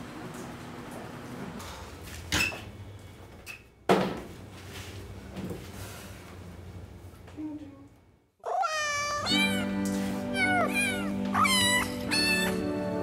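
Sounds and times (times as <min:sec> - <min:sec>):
meowing cat ringtone with music: 0:08.5 - 0:13.0.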